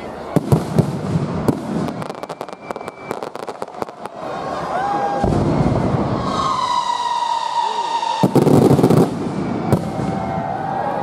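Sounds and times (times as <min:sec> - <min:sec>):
firework crackle: 0:00.1 - 0:11.0
deep firework boom: 0:05.2 - 0:10.8.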